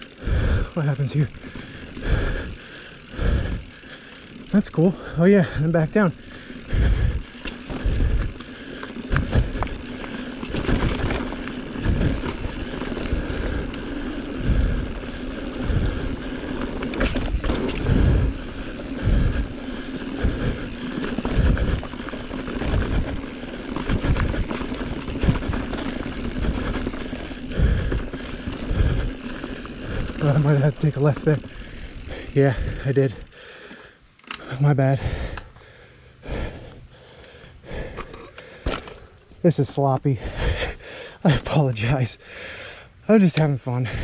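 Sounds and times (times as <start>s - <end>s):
bike chain and frame rattling: 0.0s - 42.1s
knobby tyres rolling on dirt: 0.0s - 42.3s
low thumps over bumps: 9.0s - 31.2s.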